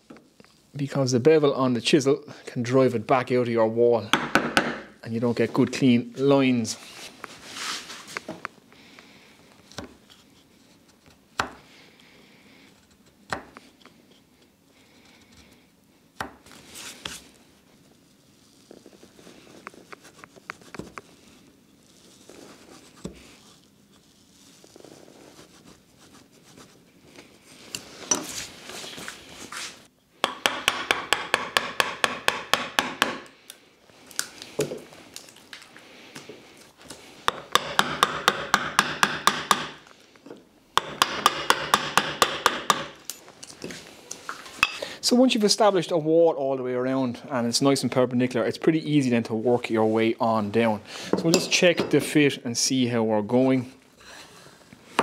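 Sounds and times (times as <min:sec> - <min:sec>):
chisel tapping into wood: 0:30.2 - 0:33.3, 0:37.3 - 0:39.8, 0:40.8 - 0:43.0.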